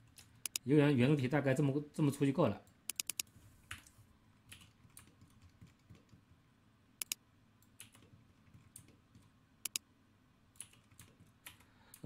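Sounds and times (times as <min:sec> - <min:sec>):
computer mouse clicks: 0:00.1 - 0:00.6, 0:02.9 - 0:06.2, 0:07.0 - 0:09.8
keyboard clicks: 0:00.1 - 0:00.6, 0:02.9 - 0:03.9, 0:07.0 - 0:09.8.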